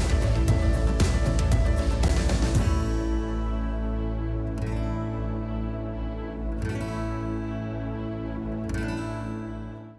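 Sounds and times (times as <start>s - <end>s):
instrumental music with steady beat: 0.0s - 5.8s.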